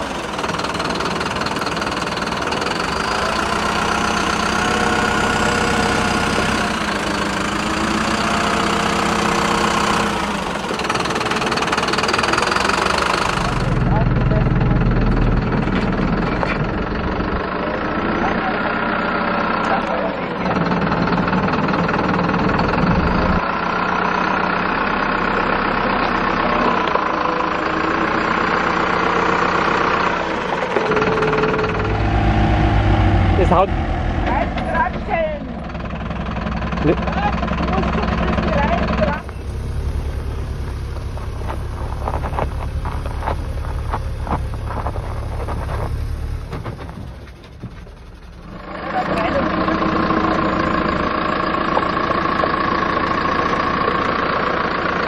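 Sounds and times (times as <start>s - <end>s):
diesel engine running at low revs: 0.0s - 55.0s
tyres crawling over gravel: 40.4s - 47.8s.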